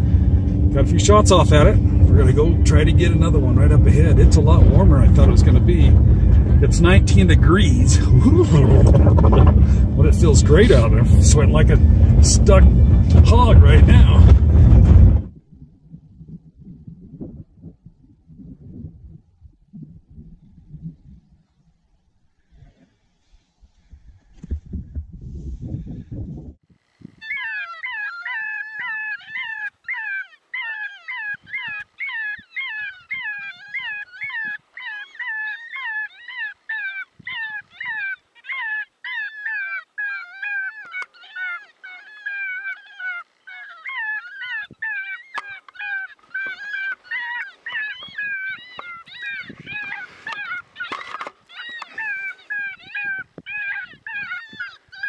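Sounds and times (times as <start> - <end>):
electronic fox yelps: 6.6 - 9.9, 27.1 - 55.0
low thump: 12.8 - 15.3.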